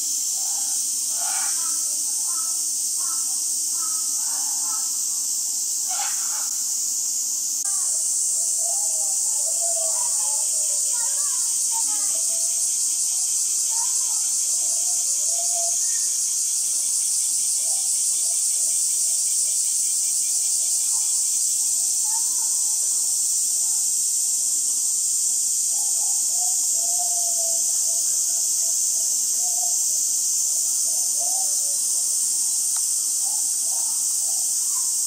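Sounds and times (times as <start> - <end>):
insects droning: 0.0 - 35.0
faint voices: 7.6 - 16.1, 25.7 - 35.0.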